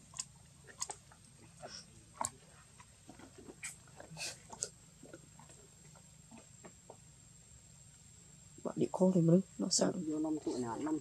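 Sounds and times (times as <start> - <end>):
clicks and cracks of food bitten: 0.0 - 1.3.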